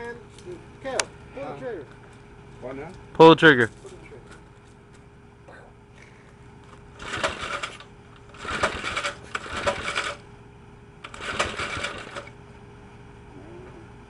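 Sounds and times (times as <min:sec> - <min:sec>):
small engine cranking: 0:07.0 - 0:10.2, 0:11.0 - 0:12.4.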